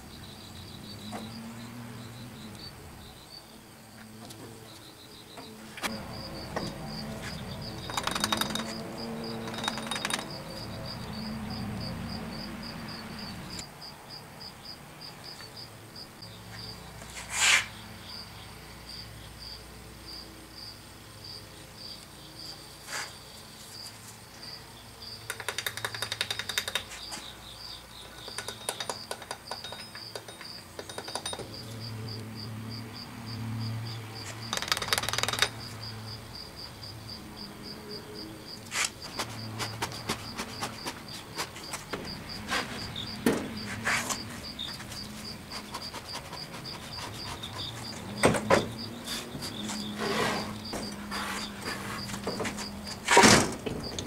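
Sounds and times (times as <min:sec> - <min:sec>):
cricket chirping: 0:00.0 - 0:54.0
metal tools clicking and tapping: 0:07.7 - 0:10.6, 0:25.3 - 0:27.2, 0:28.1 - 0:31.6, 0:34.5 - 0:35.6.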